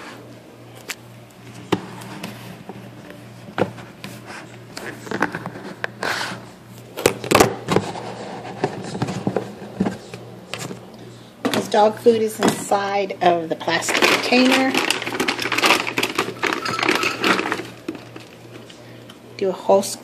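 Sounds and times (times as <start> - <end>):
plastic containers clicking and knocking: 13.7 - 18.7
dishes being moved: 13.9 - 18.7.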